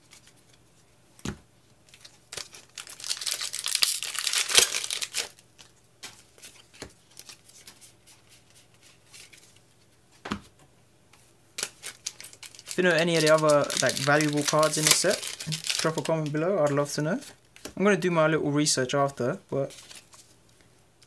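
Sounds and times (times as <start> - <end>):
foil pack tearing and crinkling: 2.3 - 5.4, 11.6 - 16.1.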